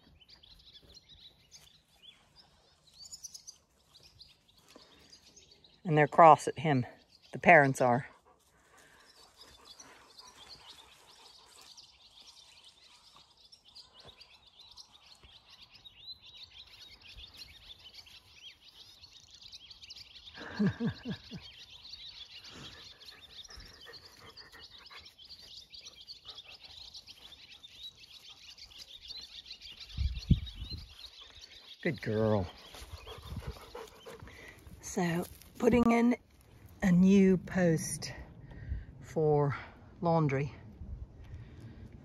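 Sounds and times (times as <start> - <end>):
swallows twittering and chirping: 0.0 - 5.9, 8.1 - 36.1.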